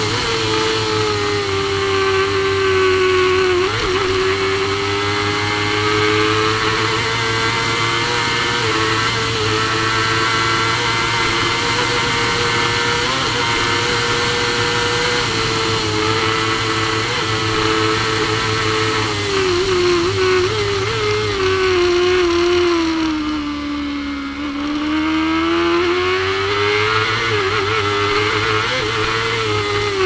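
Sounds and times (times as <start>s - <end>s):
motorcycle engine at high revs: 0.0s - 30.0s.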